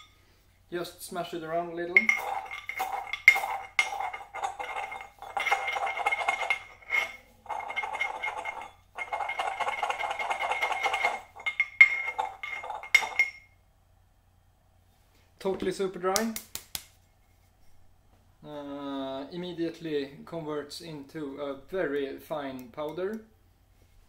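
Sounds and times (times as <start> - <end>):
pestle grinding in mortar: 2.0 - 13.4.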